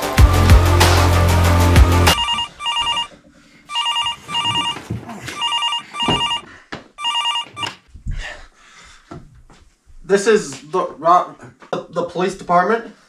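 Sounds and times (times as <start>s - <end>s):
telephone ringing in double rings: 2.2s - 3.1s, 3.7s - 7.8s.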